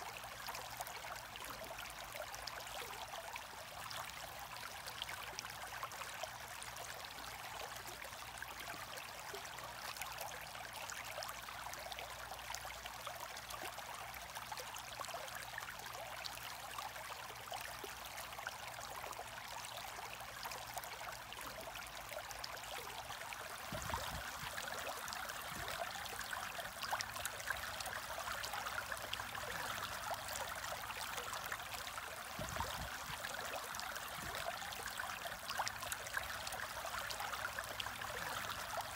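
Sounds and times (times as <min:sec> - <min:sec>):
aquarium water bubbling: 0:15.6 - 0:38.9.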